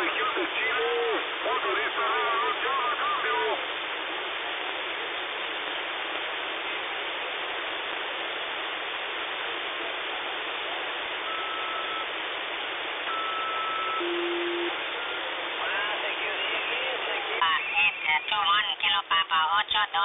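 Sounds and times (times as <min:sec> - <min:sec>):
radio static hiss: 0:00.0 - 0:20.0
brief lower tone: 0:11.3 - 0:12.1, 0:13.1 - 0:15.2.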